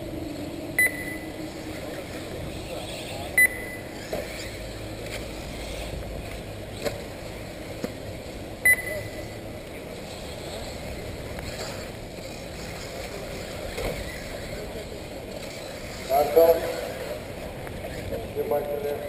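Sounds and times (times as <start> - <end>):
short high electronic beep: 0.8 - 1.3, 3.4 - 3.9, 8.7 - 9.4.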